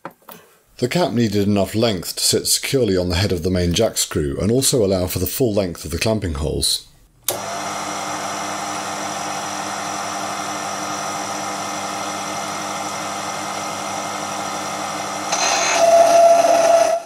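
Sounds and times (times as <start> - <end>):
lathe motor humming and whining: 7.3 - 17.0.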